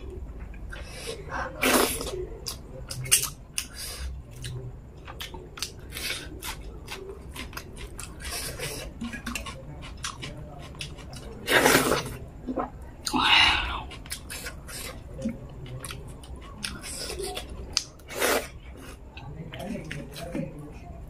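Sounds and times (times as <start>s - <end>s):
wet mouth smacking and chewing: 2.4s - 11.4s, 13.8s - 18.0s.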